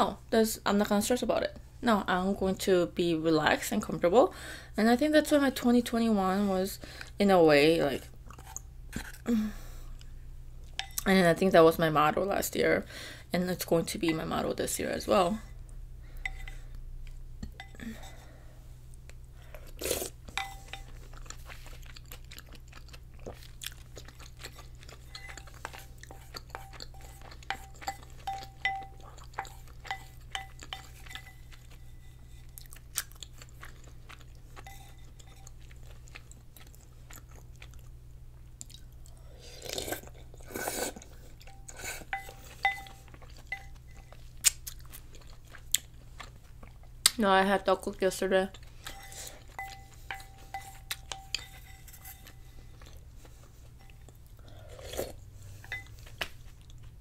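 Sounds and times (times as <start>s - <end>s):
steady low hum: 0.0s - 57.0s
chewing and mouth sounds: 18.9s - 47.2s, 48.5s - 57.0s
chopsticks tapping a bowl: 20.4s - 20.9s, 25.1s - 32.4s, 41.5s - 44.1s, 48.8s - 52.4s, 55.6s - 56.0s.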